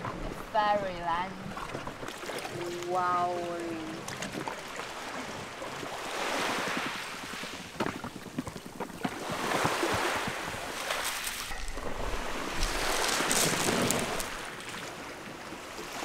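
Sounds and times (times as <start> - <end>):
water splashing around a dinghy: 0.0 - 16.0
small waves on a pebble beach: 2.0 - 16.0.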